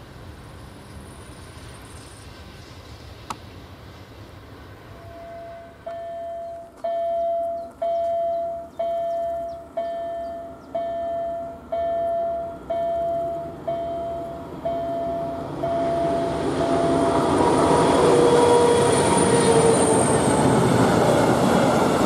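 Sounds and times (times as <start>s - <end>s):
level-crossing warning bell ringing: 5.1s - 20.3s.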